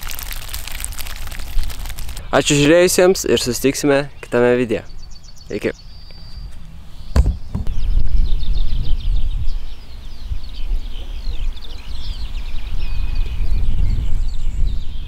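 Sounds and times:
small birds chirping: 2.2s - 15.0s
wind buffeting microphone: 5.8s - 15.0s
single knock: 7.2s - 7.8s.

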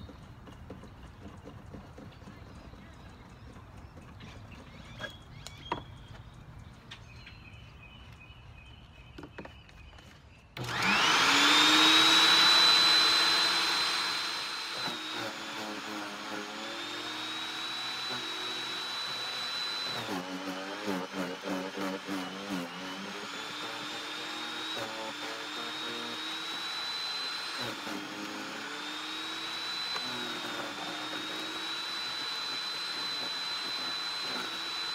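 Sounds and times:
chipper shredder motor whining: 10.6s - 34.9s.

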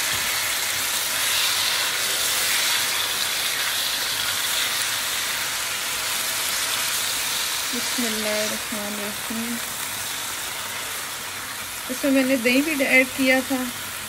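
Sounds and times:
chicken sizzling in hot oil: 0.0s - 14.0s.

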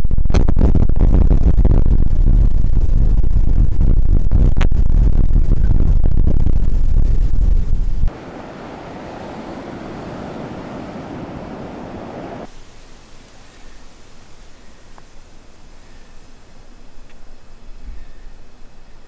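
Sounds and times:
steady rushing noise: 6.6s - 12.6s
wind buffeting microphone: 7.9s - 12.5s.

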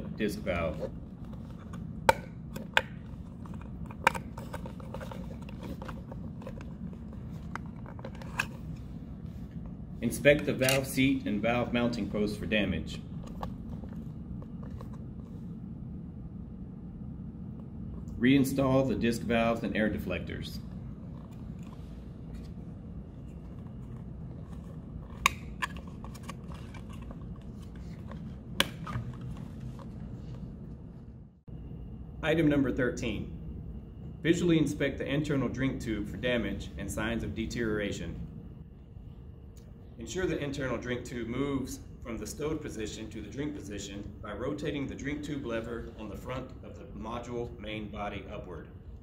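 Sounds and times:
low hum: 0.0s - 49.0s
mask handling clicks and rubbing: 0.5s - 11.0s, 13.1s - 15.4s, 20.9s - 30.4s.

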